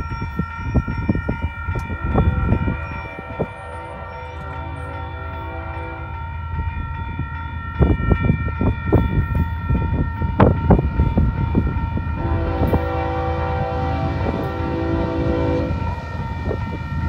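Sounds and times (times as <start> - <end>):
locomotive air horn: 2.0 - 6.4, 12.2 - 16.2.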